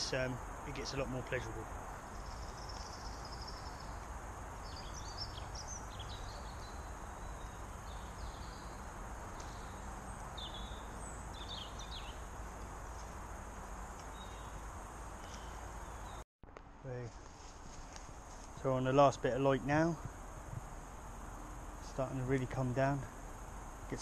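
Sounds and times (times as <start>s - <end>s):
small birds chirping: 0.0s - 16.2s
distant motorway traffic: 0.0s - 24.0s.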